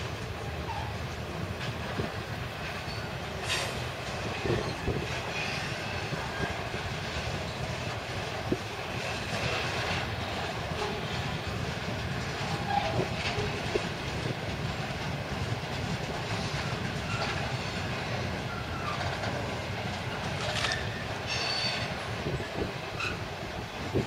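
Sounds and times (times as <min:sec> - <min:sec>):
diesel locomotives working: 0:00.0 - 0:24.0
train wagons rumbling: 0:00.0 - 0:24.0
train wheel clicks: 0:01.1 - 0:23.2
faint wheel squeals: 0:20.6 - 0:22.0.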